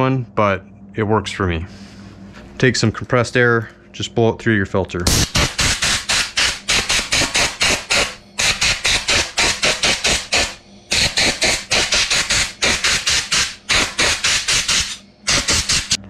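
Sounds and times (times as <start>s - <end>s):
compressed air blow gun bursts: 5.1s - 16.0s.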